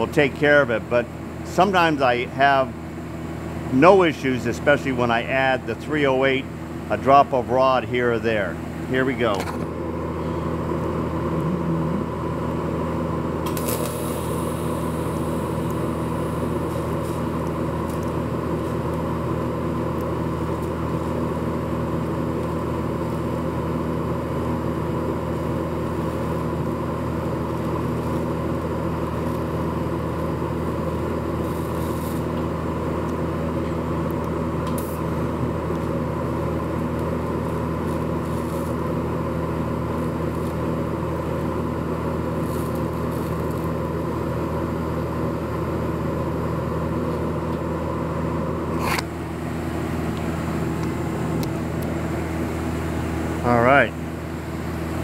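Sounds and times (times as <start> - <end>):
welder electrical hum: 0.0 - 55.0
faint welding crackles: 13.5 - 21.3, 25.4 - 33.3, 34.0 - 41.6, 42.2 - 44.4.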